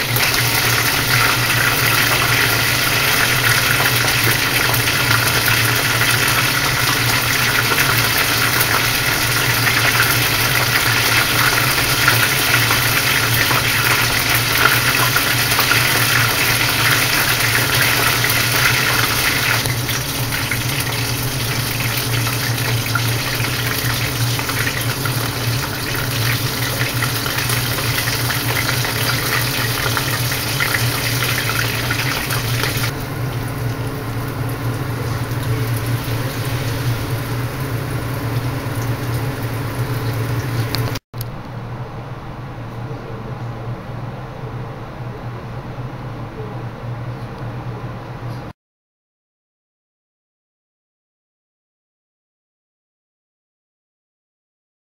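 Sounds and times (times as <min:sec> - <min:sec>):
food sizzling in deep-frying oil: 0:00.0 - 0:41.0
steady low hum: 0:00.0 - 0:48.5.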